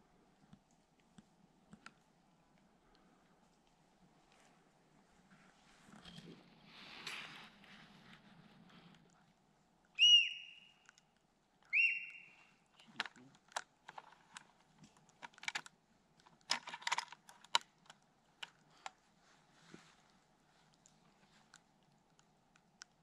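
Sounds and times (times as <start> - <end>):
deer whistle calls: 10.0 - 11.0, 11.7 - 12.6.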